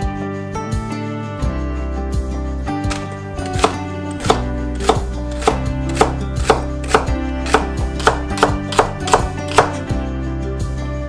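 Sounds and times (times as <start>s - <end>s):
soft background music: 0.0s - 11.0s
knife chopping on wooden board: 2.9s - 9.9s.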